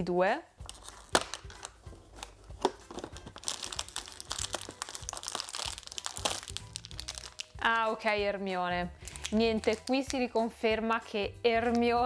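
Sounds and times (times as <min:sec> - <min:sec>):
cardboard crinkling: 0:00.6 - 0:07.5.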